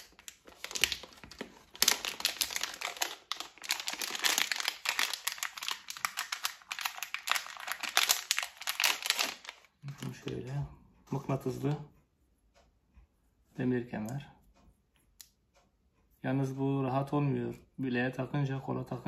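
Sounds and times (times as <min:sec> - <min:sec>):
plastic wrapping crinkling: 0:00.0 - 0:10.5.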